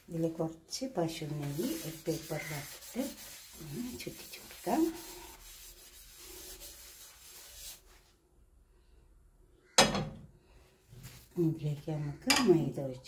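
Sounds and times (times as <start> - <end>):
paper towel rubbing a pan: 0.0 - 8.2.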